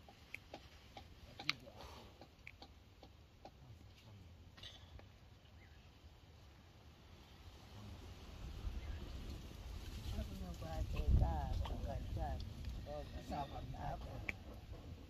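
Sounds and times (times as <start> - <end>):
porridge clicking and popping: 0.0 - 3.9.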